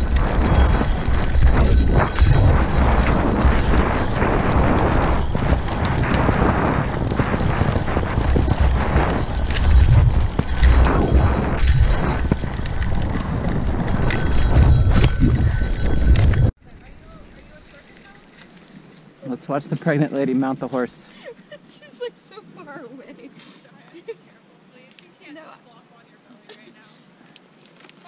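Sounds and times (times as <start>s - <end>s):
wind rumbling on microphone: 0.0s - 20.6s
tyres crunching over dirt: 0.0s - 20.9s.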